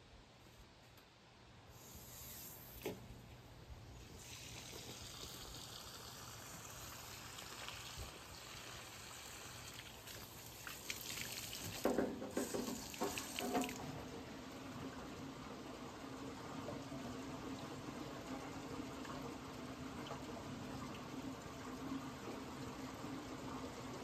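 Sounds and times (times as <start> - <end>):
hose water rushing into drum: 4.1 - 14.8.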